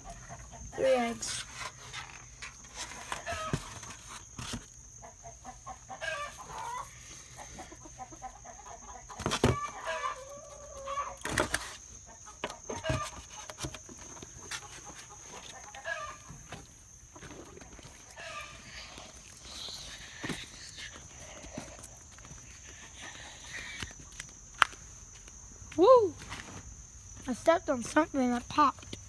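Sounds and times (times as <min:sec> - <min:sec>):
hens cackling: 0:00.0 - 0:01.2, 0:02.9 - 0:03.8, 0:04.8 - 0:13.5, 0:14.3 - 0:24.1.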